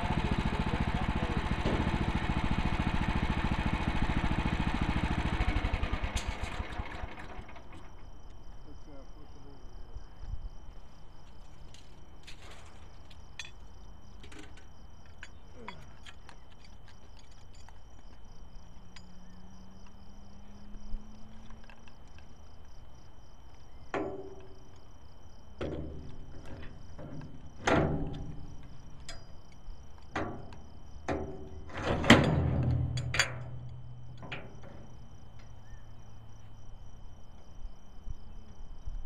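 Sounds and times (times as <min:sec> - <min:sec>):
knocks and clunks: 0:00.0 - 0:02.3, 0:23.9 - 0:24.7, 0:25.6 - 0:29.4, 0:30.0 - 0:35.7
crickets chirping: 0:00.0 - 0:39.0.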